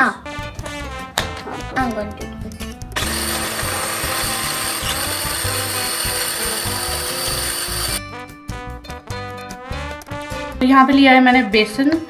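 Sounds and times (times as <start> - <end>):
electric food chopper motor: 3.0 - 8.0.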